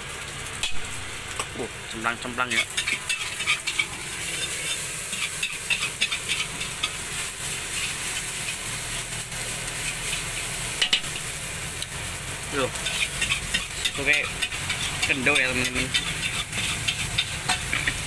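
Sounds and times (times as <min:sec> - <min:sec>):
rice sizzling in a wok: 0:00.0 - 0:18.0
spatula scraping: 0:02.4 - 0:09.0, 0:09.7 - 0:11.3, 0:12.7 - 0:18.0.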